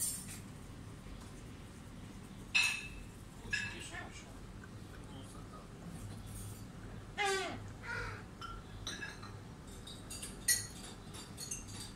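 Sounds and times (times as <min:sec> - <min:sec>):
gull calling: 0:07.2 - 0:08.3
light clinks: 0:08.4 - 0:11.9.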